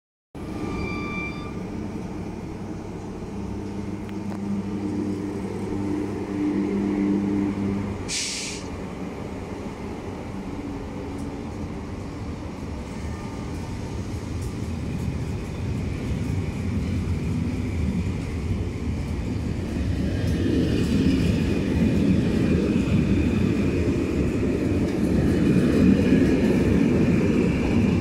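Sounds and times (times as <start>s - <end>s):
electric locomotive hum: 0.4s - 28.0s
train coaches rolling on rails: 0.4s - 28.0s
sharp hiss of air: 8.0s - 8.8s.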